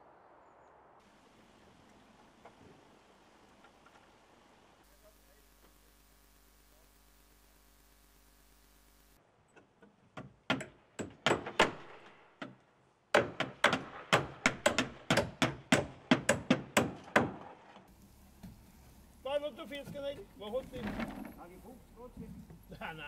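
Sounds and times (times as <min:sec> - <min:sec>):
knocks on wooden battens: 0:10.1 - 0:11.8.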